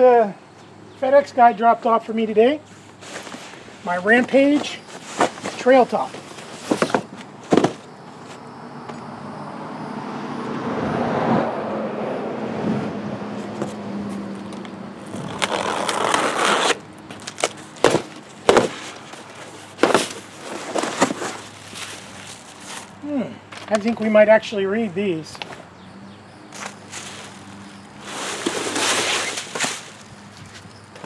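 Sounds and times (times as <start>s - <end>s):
cardboard flaps knocking: 5.1s - 7.9s, 17.8s - 18.9s, 19.8s - 21.3s
car passing by: 8.5s - 14.4s
packing tape ripping: 15.1s - 22.9s, 28.1s - 30.0s.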